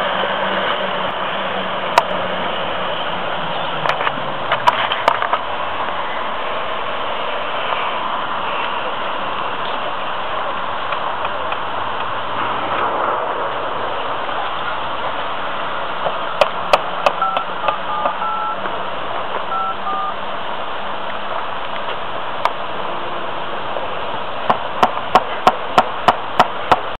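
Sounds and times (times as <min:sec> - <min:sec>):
telephone keypad beeps: 0:17.1 - 0:18.6, 0:19.5 - 0:20.2.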